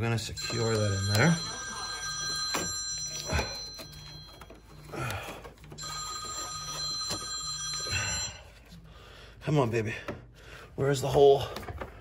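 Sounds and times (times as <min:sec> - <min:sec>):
pulsing electronic ringing: 0:00.1 - 0:08.5.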